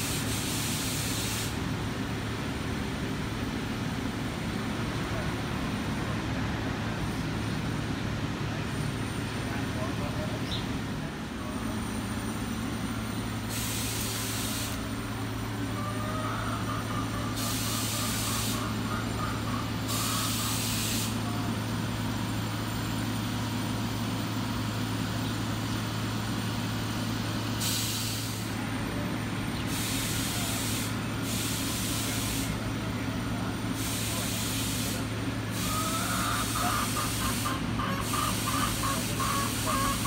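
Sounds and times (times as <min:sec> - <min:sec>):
bursts of hiss: 0:00.0 - 0:01.7, 0:13.5 - 0:15.0, 0:17.3 - 0:19.0, 0:19.8 - 0:21.3, 0:27.5 - 0:28.6, 0:29.7 - 0:32.6, 0:33.7 - 0:40.0.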